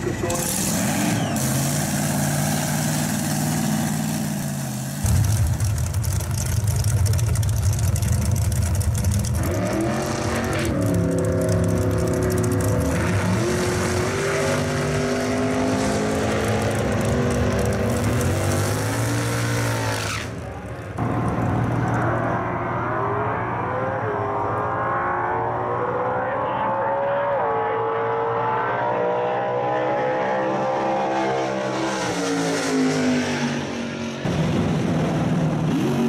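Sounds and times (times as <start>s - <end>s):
race car engines revving: 0.0s - 36.0s.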